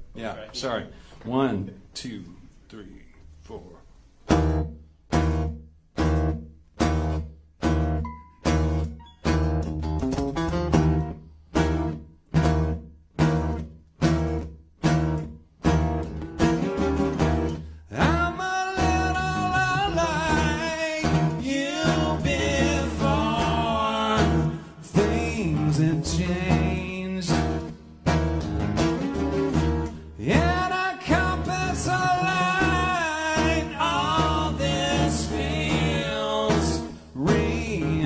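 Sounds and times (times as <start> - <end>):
acoustic guitars strumming: 4.2 - 38.0
man singing: 17.9 - 27.8, 30.2 - 38.0.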